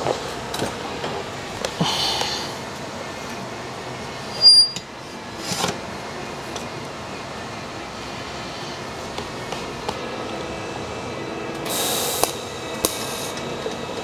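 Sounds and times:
high-pitched metallic ring: 4.3s - 4.9s
welding hiss: 11.6s - 13.4s.

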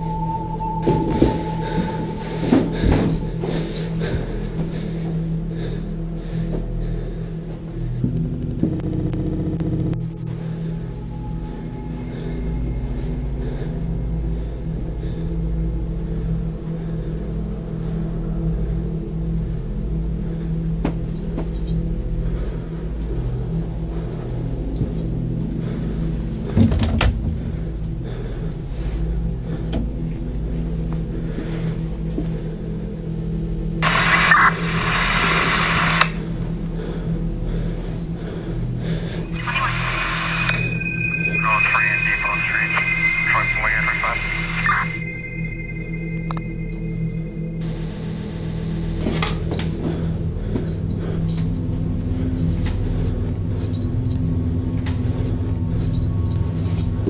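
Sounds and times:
low droning hum: 0.0s - 57.0s
police radio static: 33.8s - 36.2s, 39.3s - 46.9s.

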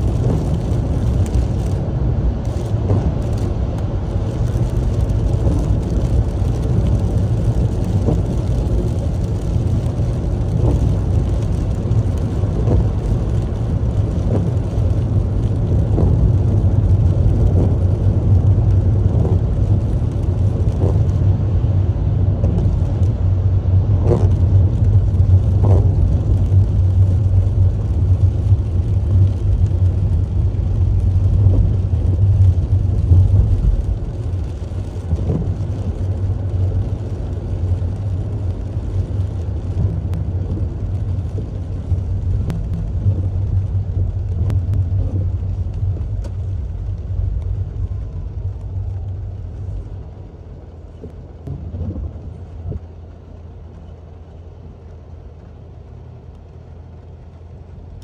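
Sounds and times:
engine and tyres rumbling: 0.0s - 58.0s
windshield wipers swishing: 0.0s - 58.0s.

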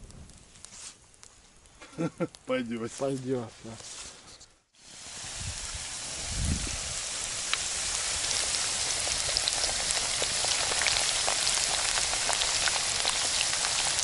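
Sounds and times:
oil spitting crackles: 4.8s - 14.0s
potatoes sizzling in hot oil: 4.8s - 14.0s.

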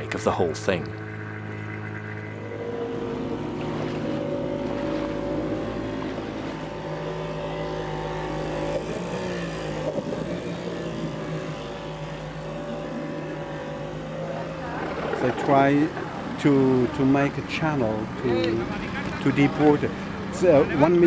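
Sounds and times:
outboard motor running: 0.0s - 21.0s
propeller wash churning water: 0.0s - 21.0s.

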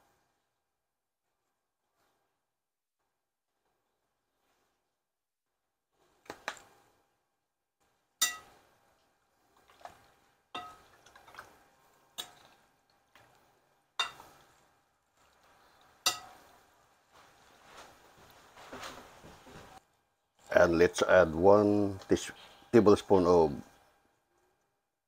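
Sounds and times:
metal spoon clinking on glass bowl: 8.2s - 8.5s, 10.6s - 10.8s, 14.0s - 14.2s, 16.1s - 16.4s.

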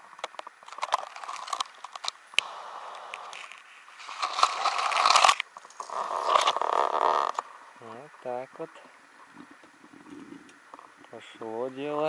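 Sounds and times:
kindling rustling and crackling: 0.1s - 7.5s.

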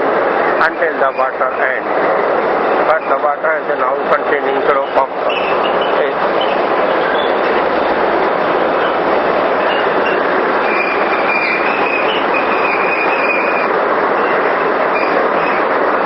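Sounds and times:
water rushing through machine: 0.0s - 16.0s
thin high squeal: 9.6s - 13.7s.

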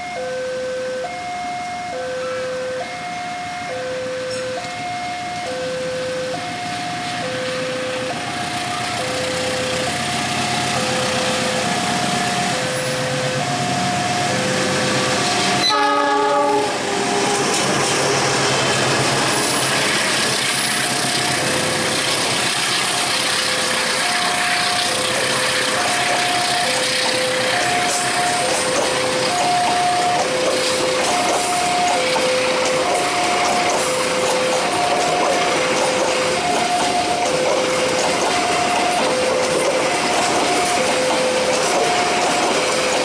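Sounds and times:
level-crossing alarm two-tone: 0.0s - 17.4s, 20.1s - 43.0s
train carriages rolling on rails: 0.0s - 43.0s
locomotive horn blast: 14.9s - 17.4s.

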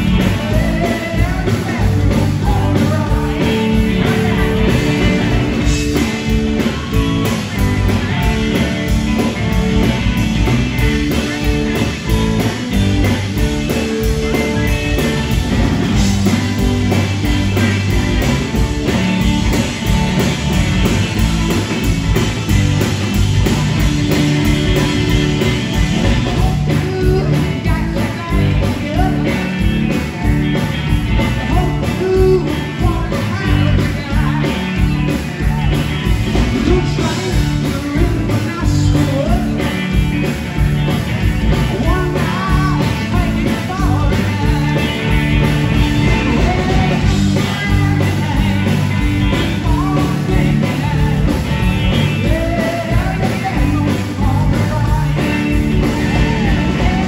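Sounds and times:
man singing: 0.0s - 6.4s, 25.9s - 29.7s, 30.6s - 40.0s, 41.5s - 57.0s
rock band playing: 0.0s - 57.0s.

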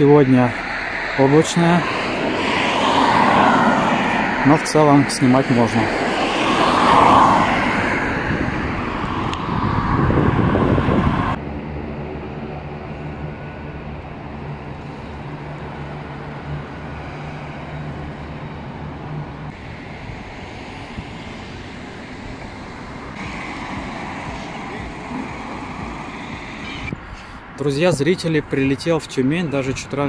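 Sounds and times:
loud rushing noise: 0.0s - 28.2s
machine drone with low hum: 11.3s - 27.0s.

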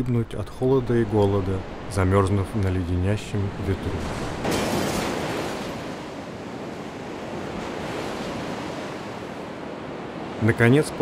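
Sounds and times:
stormy sea waves: 0.0s - 11.0s.

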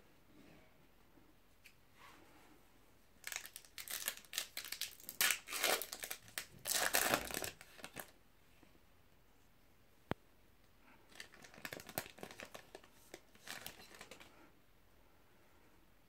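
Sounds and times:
foil wrapper tearing and crinkling: 3.2s - 8.1s, 11.1s - 14.3s.

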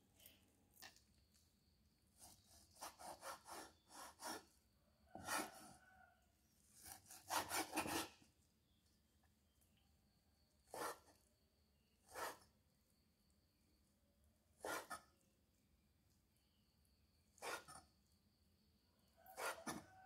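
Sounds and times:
blade scraping wooden board: 2.7s - 4.5s, 5.2s - 5.7s, 6.8s - 8.2s, 19.4s - 19.9s.

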